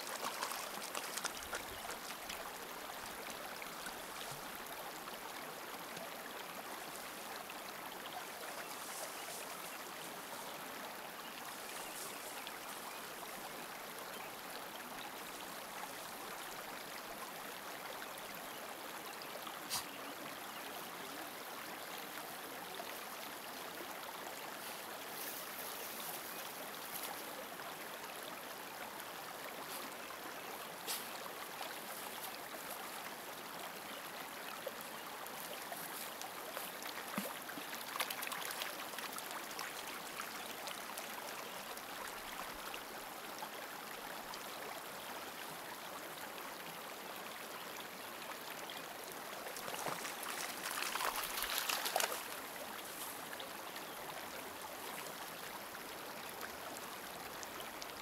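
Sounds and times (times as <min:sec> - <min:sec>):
small water splashes: 0:00.0 - 0:04.4, 0:35.4 - 0:40.2, 0:49.4 - 0:53.0
running trickling water: 0:00.0 - 0:05.0, 0:48.5 - 0:58.0.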